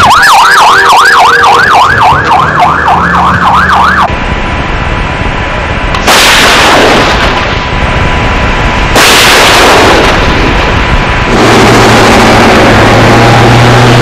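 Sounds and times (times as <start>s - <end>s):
heavy vehicle engine running: 0.8s - 14.0s
artillery blasts with rumbling echo: 6.0s - 13.4s.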